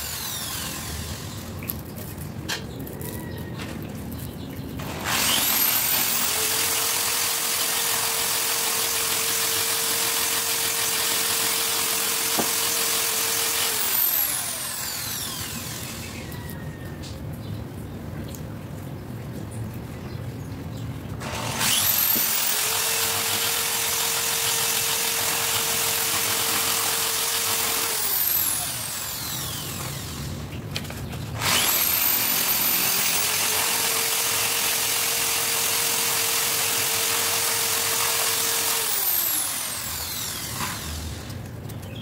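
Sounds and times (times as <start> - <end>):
electric power tool motor whining: 0.0 - 1.8, 4.8 - 16.4, 21.2 - 30.5, 31.4 - 41.4.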